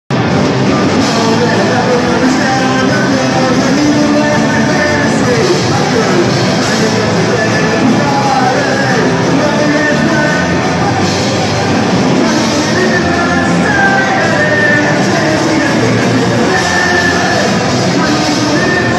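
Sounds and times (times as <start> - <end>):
electric guitar: 0.1 - 18.9
live rock band: 0.1 - 18.9
person singing: 0.1 - 18.9.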